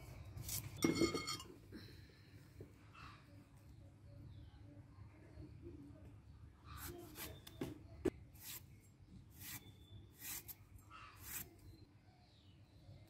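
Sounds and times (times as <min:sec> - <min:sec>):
knife slicing tomato: 0:06.8 - 0:07.6, 0:11.2 - 0:11.5.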